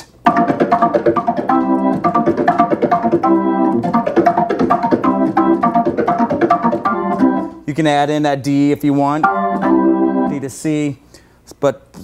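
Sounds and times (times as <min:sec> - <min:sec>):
organ playing funk chord stabs: 0:00.2 - 0:07.6, 0:09.2 - 0:10.5.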